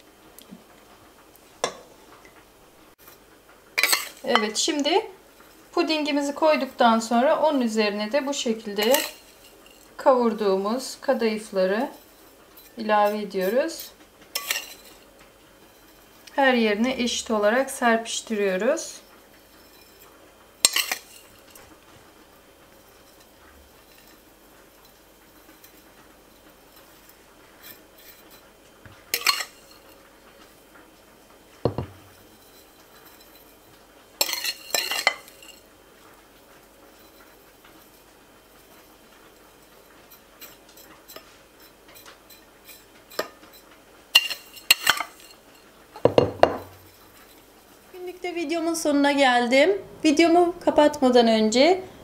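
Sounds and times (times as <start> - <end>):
metal spoon scraping a bowl: 3.8 - 4.6, 8.4 - 10.0, 11.8 - 15.1, 19.5 - 21.7, 26.4 - 28.4, 29.1 - 30.0, 34.2 - 35.6, 40.1 - 45.6.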